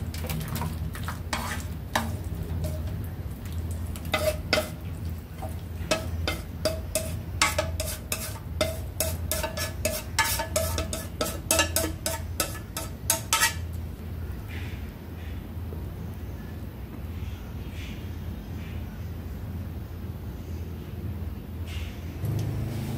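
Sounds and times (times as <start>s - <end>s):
spatula scraping a wok: 1.0s - 3.0s, 3.9s - 13.8s.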